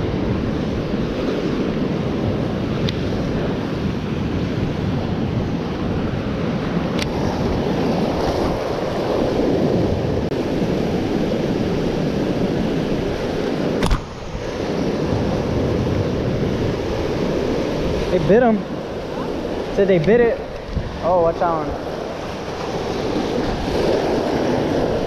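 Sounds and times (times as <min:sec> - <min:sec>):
wind buffeting microphone: 0:00.0 - 0:25.0
surf breaking on rocks: 0:07.1 - 0:25.0
sharp click: 0:13.8 - 0:14.1.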